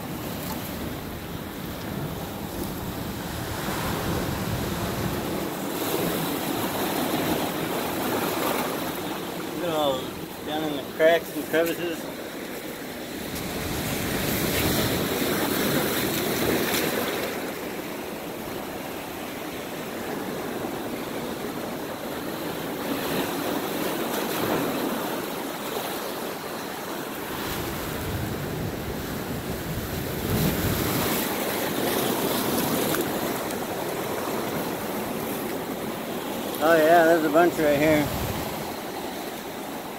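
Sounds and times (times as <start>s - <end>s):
surf washing against rocks: 0.0s - 39.9s
wind gusts on microphone: 0.4s - 9.0s, 27.3s - 35.2s, 37.3s - 38.8s.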